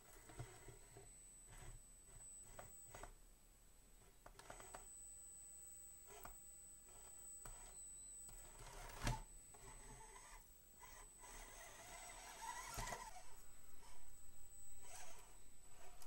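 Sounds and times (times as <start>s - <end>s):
small electric motor whirring: 6.0s - 16.0s.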